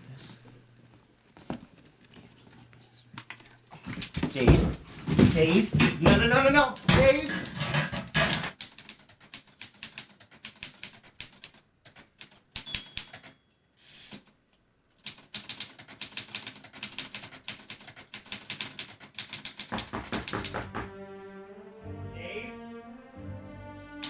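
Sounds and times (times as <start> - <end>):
manual typewriter typing: 6.2 - 13.4, 15.0 - 20.7.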